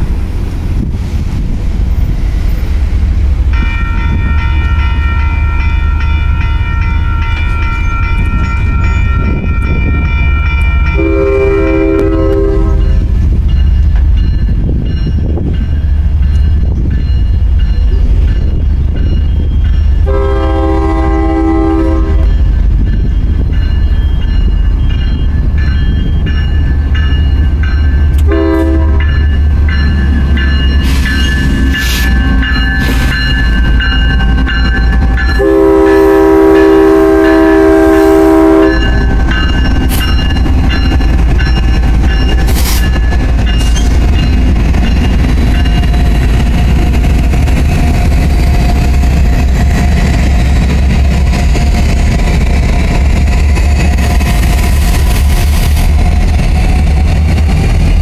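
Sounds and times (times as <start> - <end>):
diesel locomotive rumble: 0.0 - 58.0
crossing bell ringing: 3.4 - 54.0
locomotive horn blast: 10.9 - 13.0, 20.0 - 22.3, 28.2 - 29.2, 34.3 - 39.4.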